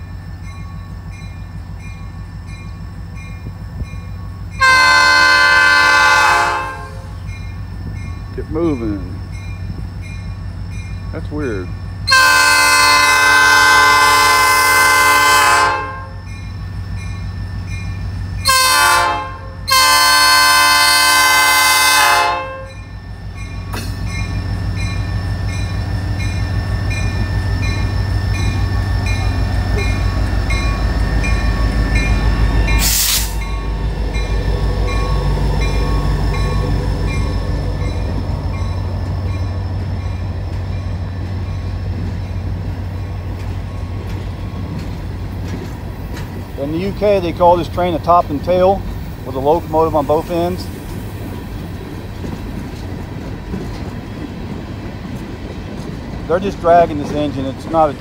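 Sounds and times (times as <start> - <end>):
diesel locomotive engine rumbling: 0.0 - 58.0
rail cars clattering: 0.0 - 58.0
locomotive air horn blasts: 4.6 - 7.2, 12.1 - 16.2, 18.4 - 22.8
air brake hiss: 32.8 - 33.4.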